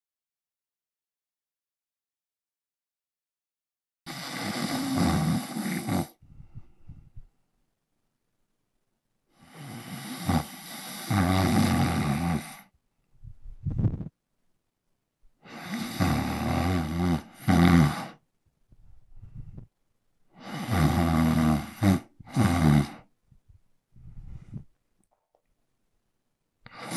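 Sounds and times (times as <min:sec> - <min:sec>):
man snoring: 0:04.1 - 0:06.2, 0:09.4 - 0:12.7, 0:15.4 - 0:18.2, 0:20.4 - 0:23.1, 0:26.7 - 0:26.9
soft breaths: 0:04.1 - 0:07.4, 0:12.0 - 0:14.2, 0:17.2 - 0:24.8.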